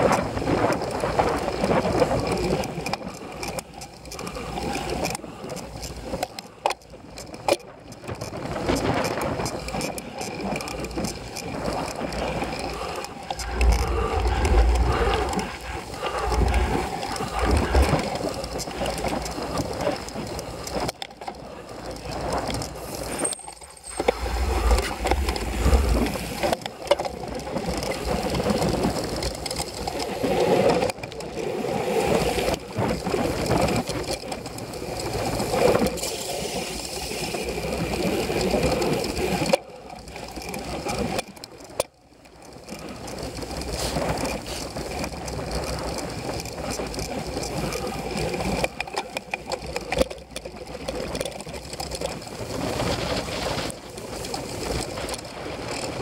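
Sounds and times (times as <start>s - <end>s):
bike rattling: 0.0s - 56.0s
bike riding over bumpy grass: 8.0s - 30.8s, 42.5s - 56.0s.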